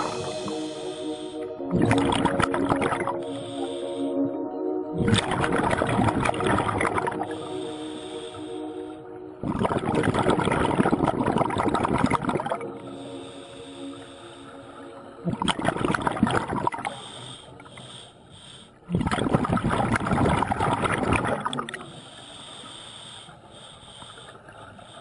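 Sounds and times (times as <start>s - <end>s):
exhaled bubbles rushing: 0.0s - 0.7s, 1.4s - 3.3s, 5.0s - 7.6s, 9.4s - 12.8s, 15.2s - 17.0s, 18.9s - 21.8s
breathing through a regulator: 0.0s - 4.4s, 5.1s - 19.0s, 21.4s - 25.0s.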